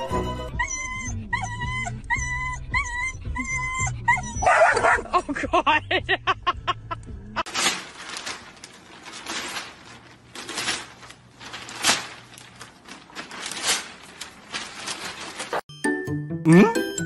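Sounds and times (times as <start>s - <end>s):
paper swishes: 7.5s - 15.6s
newspaper rustling and crinkling: 7.5s - 15.7s.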